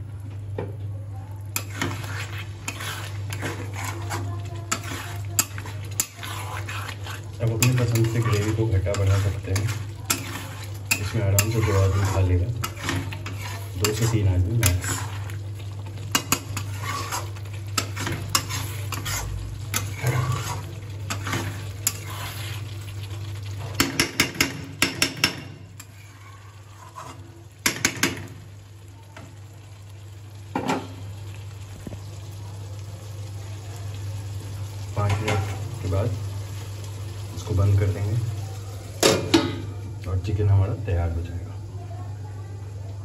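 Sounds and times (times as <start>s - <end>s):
gravy sizzling: 0.0s - 43.0s
metal spatula scraping a pan: 1.5s - 15.4s, 16.1s - 22.8s, 25.8s - 28.0s.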